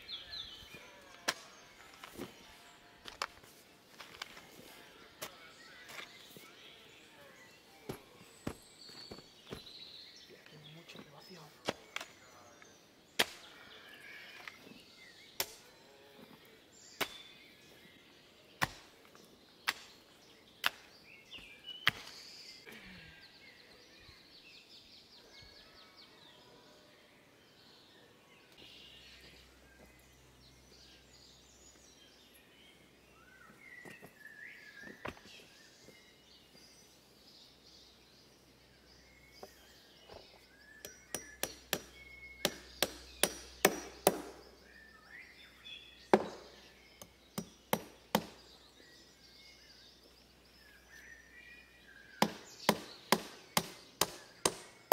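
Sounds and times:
hoe chopping into stony soil: 0:13.2 - 0:13.6, 0:16.8 - 0:17.4, 0:18.6 - 0:20.0, 0:40.8 - 0:44.5, 0:46.1 - 0:48.5.

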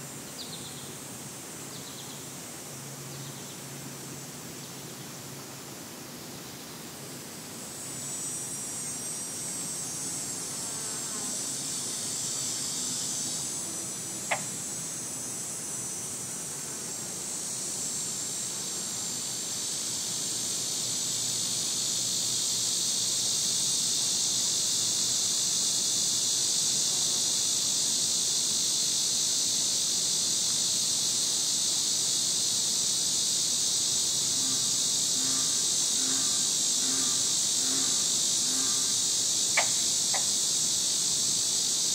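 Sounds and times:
cicada buzzing drone: 0:00.0 - 0:41.9.

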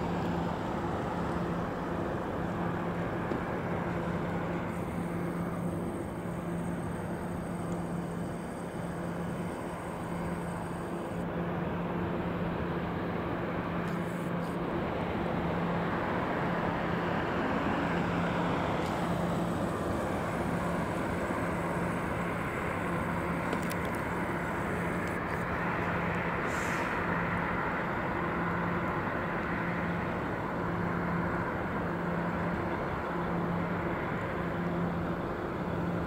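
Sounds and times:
constant low hum: 0:00.0 - 0:36.0
road traffic: 0:00.0 - 0:36.0.

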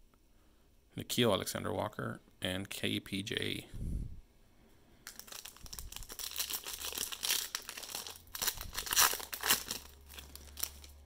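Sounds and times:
foil wrapper crinkling and tearing: 0:05.1 - 0:11.0.

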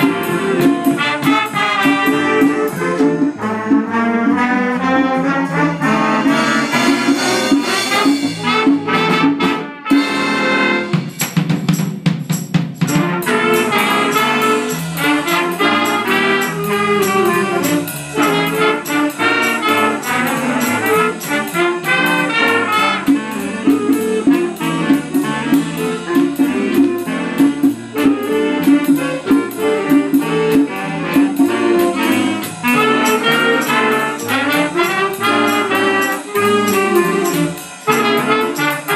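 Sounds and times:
trumpets and saxophones: 0:00.0 - 0:11.4, 0:12.8 - 0:38.9
drum kit cymbal beat: 0:00.0 - 0:38.9
jazz band playing: 0:00.0 - 0:38.9.

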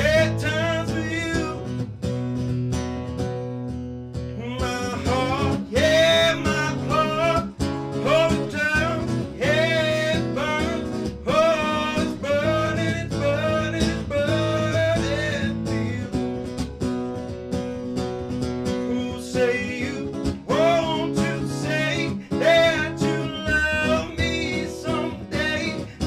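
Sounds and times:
man singing slow song: 0:00.0 - 0:01.8, 0:04.4 - 0:16.2, 0:18.8 - 0:26.0
acoustic guitar: 0:00.0 - 0:26.0.

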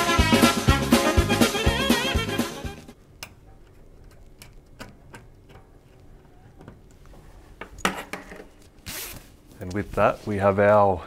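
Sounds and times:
background music: 0:00.0 - 0:03.0
cable connectors clicking and knocking: 0:03.2 - 0:07.0.

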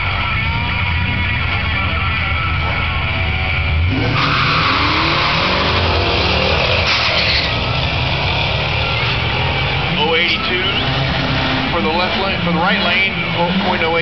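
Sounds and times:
car engines revving and accelerating: 0:00.0 - 0:14.0.

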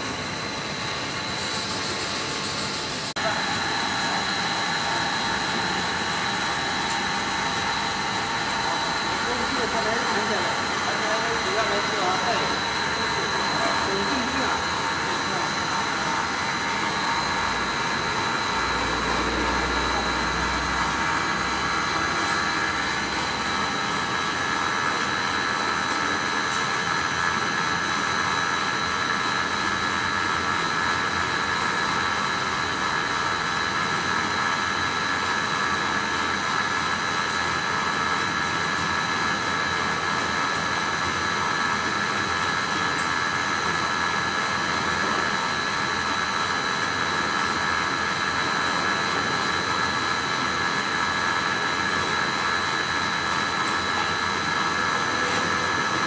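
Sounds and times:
high machine whine: 0:00.0 - 0:56.0
machinery noise: 0:01.7 - 0:25.5, 0:53.3 - 0:56.0.

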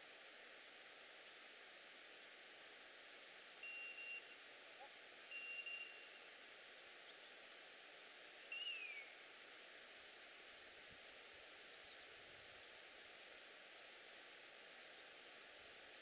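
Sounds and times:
steady field hiss: 0:00.0 - 0:16.0
faint electronic beeps: 0:03.6 - 0:04.4, 0:05.3 - 0:06.2.

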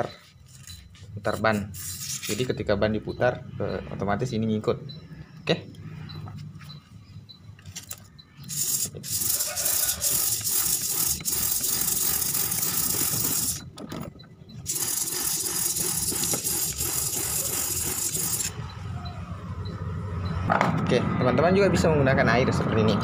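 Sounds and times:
sandpaper rasping on metal: 0:01.5 - 0:02.5, 0:08.5 - 0:13.6, 0:14.7 - 0:18.5.

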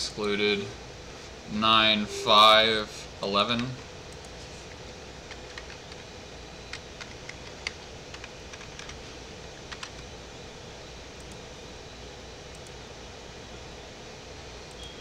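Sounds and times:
background hum: 0:00.0 - 0:15.0
keyboard and mouse clicks: 0:05.3 - 0:06.0, 0:06.7 - 0:09.0, 0:09.7 - 0:10.0.

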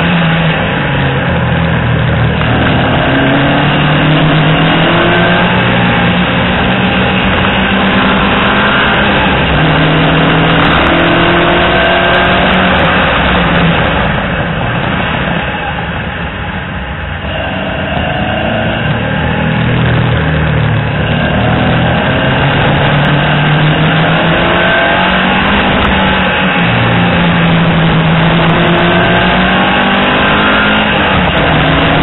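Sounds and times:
car engine revving through gears: 0:00.0 - 0:15.2, 0:17.2 - 0:32.0.

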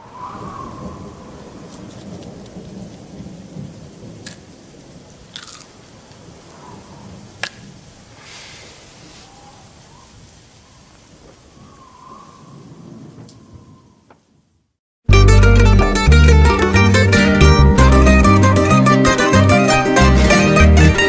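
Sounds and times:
rumble of thunder: 0:00.0 - 0:05.3, 0:11.2 - 0:14.1
thunder cracks: 0:00.0 - 0:05.4, 0:11.2 - 0:14.1
rain: 0:00.0 - 0:14.8.

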